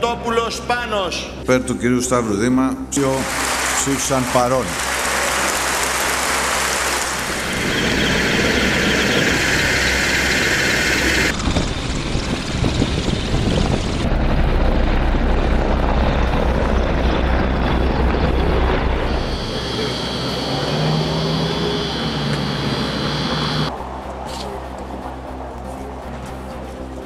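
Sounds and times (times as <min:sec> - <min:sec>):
crowd applauding: 0:03.2 - 0:11.3
helicopter rotor and engine: 0:04.8 - 0:24.0.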